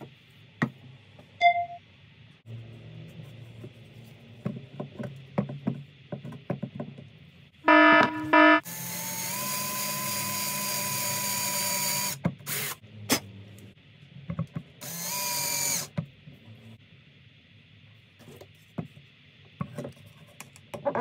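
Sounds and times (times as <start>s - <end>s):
loud buzzing tone: 7.6s - 11.5s
electric drill boring into wood: 8.7s - 12.8s, 14.8s - 15.9s.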